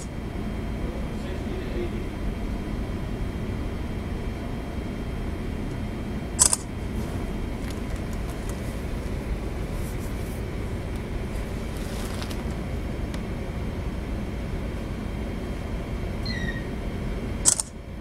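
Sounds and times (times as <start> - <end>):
ship engines rumbling: 0.0 - 18.0
sharp clatter: 17.5 - 17.7.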